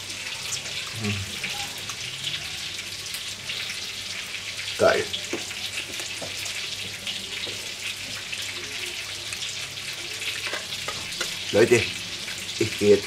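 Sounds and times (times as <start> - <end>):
meatballs sizzling in a pan: 0.0 - 13.0.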